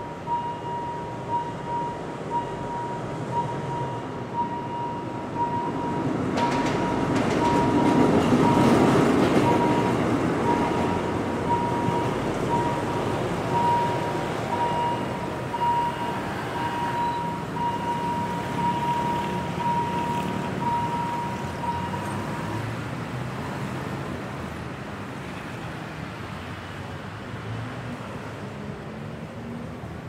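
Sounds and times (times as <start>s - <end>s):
city traffic: 0.0s - 30.0s.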